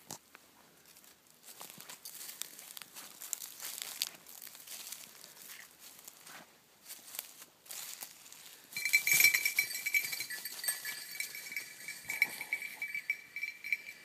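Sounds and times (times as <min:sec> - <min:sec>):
dog collar bell jingling: 0:08.8 - 0:14.0.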